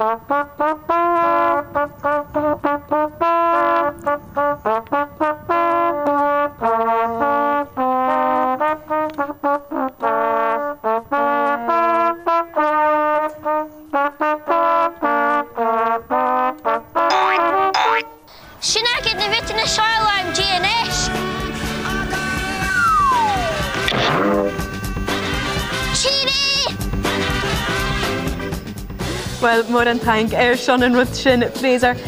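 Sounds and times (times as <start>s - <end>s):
solo trumpet playing a tune: 0.0s - 18.4s, 22.9s - 28.5s.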